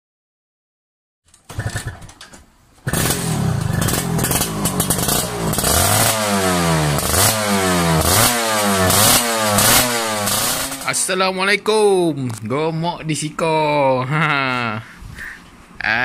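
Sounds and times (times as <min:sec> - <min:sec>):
motorcycle engine revving: 0:01.5 - 0:11.0.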